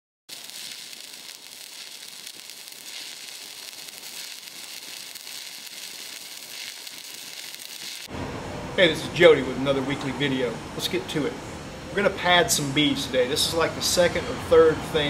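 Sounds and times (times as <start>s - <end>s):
welding arc crackling hiss: 0.3s - 8.1s.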